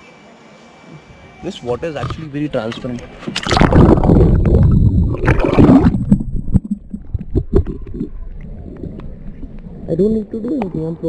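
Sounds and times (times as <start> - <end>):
water splashing and gurgling: 3.2 - 9.6.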